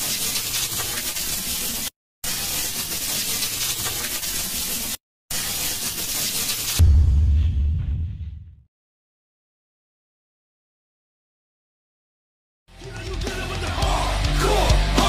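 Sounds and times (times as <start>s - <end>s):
deep loud boom: 6.8s - 8.7s.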